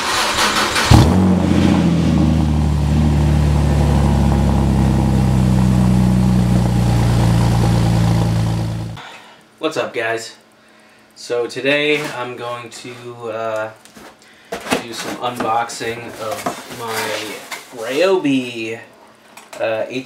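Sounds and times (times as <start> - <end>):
car engine starting and idling: 0.0 - 9.0.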